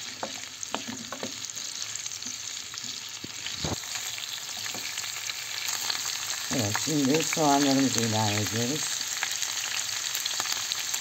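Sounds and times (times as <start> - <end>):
peppers sizzling in a frying pan: 0.0 - 11.0
wooden spoon knocking on pan: 0.2 - 1.4.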